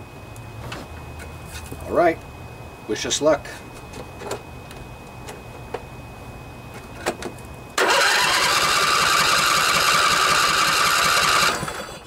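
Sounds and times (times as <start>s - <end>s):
electric starter cranking engine: 7.8s - 12.0s.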